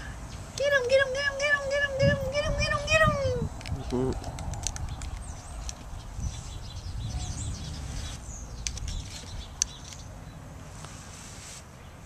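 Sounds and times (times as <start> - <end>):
small birds chirping: 0.0 - 11.0
wind rumbling on microphone: 0.8 - 10.0
sharp clicks: 3.5 - 5.9.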